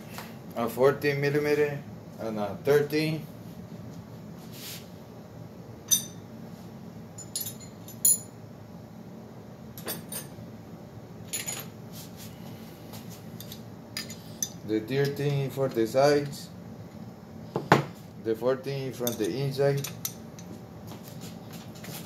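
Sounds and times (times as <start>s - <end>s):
metal tools clinking: 7.2s - 8.3s, 19.0s - 20.5s.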